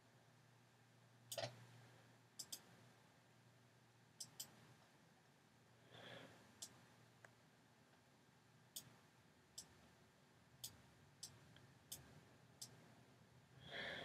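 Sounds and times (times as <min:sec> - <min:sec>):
computer mouse clicks: 0:01.3 - 0:01.6, 0:02.4 - 0:02.7, 0:04.2 - 0:04.6, 0:08.8 - 0:09.0.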